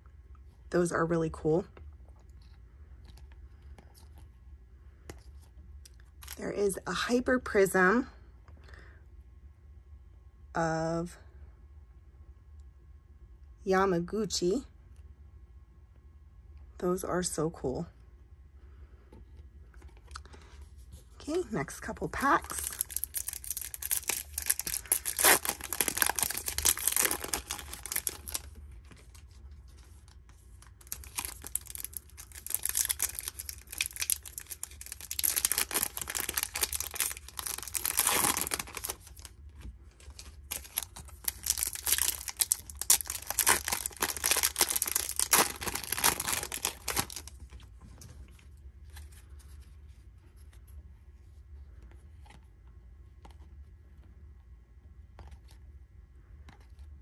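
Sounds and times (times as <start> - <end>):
foil wrappers tearing and crinkling: 22.2 - 29.2, 30.6 - 39.3, 40.0 - 47.4.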